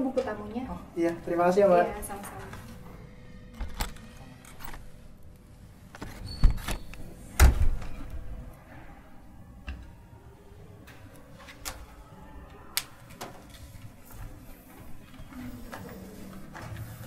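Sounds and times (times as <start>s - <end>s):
door squeak: 6.2s - 7.6s
door shutting thud: 7.4s - 8.0s.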